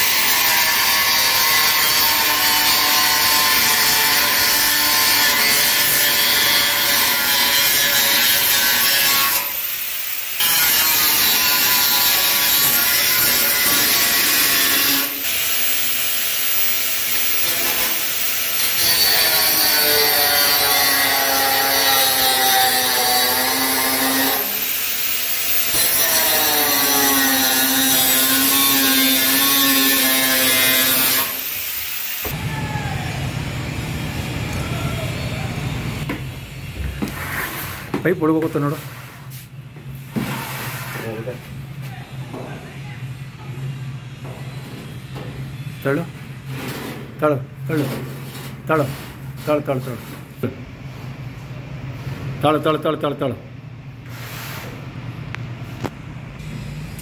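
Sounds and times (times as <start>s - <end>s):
angle grinder cutting steel: 0.0s - 32.3s.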